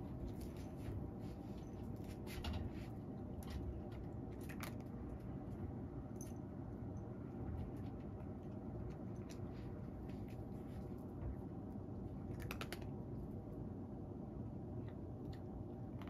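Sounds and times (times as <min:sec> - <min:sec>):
fan heater humming: 0:00.0 - 0:16.0
cat chewing food: 0:00.3 - 0:16.0.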